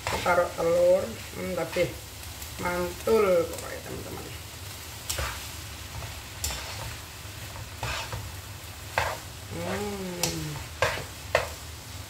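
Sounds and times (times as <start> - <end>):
spatula scraping noodles in wok: 0.0 - 0.6, 5.1 - 9.8, 10.5 - 11.6
low sizzle: 0.0 - 12.0
person humming: 9.5 - 10.7.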